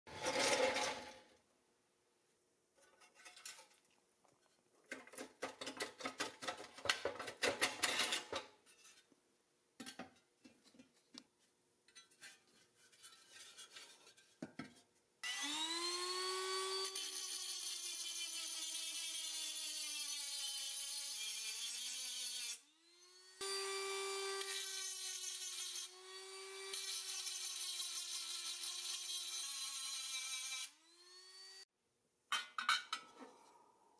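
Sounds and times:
metal scraping and knocking: 0.1s - 1.2s, 2.8s - 9.1s, 32.3s - 33.6s
cordless drill grinding metal: 15.2s - 31.7s.

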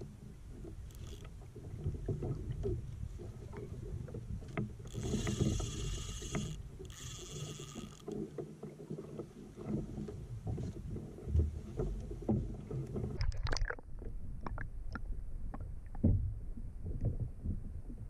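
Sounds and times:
water around a kayak: 0.0s - 18.0s
wind: 0.0s - 18.0s
fishing reel buzzing: 0.8s - 1.3s, 4.8s - 8.2s.

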